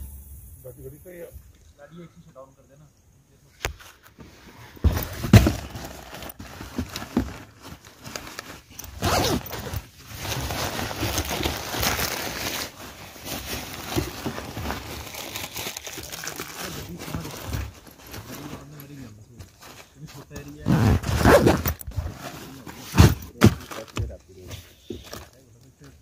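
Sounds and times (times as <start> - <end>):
handling bumps: 3.6 - 10.1, 19.4 - 25.4
bags rustling and crinkling: 3.8 - 26.0.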